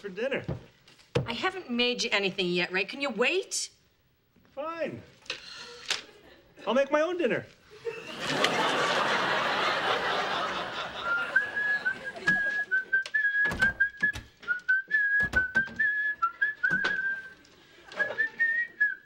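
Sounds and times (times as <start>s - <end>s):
audience laughter: 7.7s - 12.9s
man whistling a tune: 11.0s - 17.4s, 18.0s - 19.0s.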